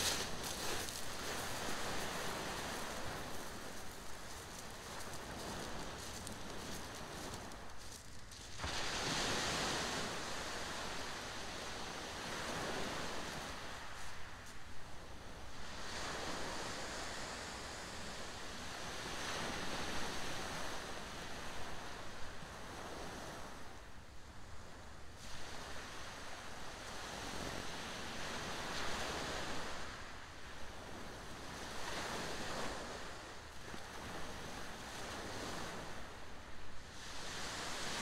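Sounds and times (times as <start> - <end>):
waves breaking on shingle: 0.0 - 8.9.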